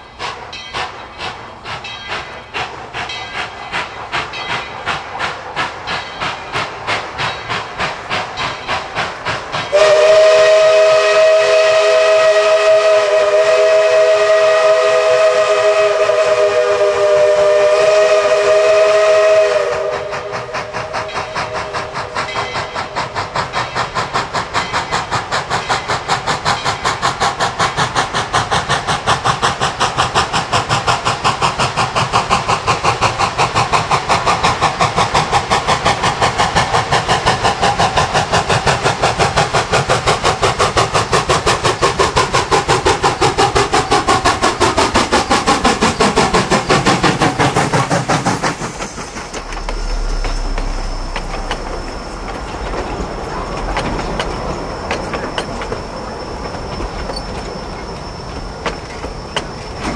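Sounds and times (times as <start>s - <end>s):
locomotive exhaust chuffing: 0.2s - 59.9s
steam locomotive chime whistle: 9.6s - 27.0s, 49.2s - 59.9s.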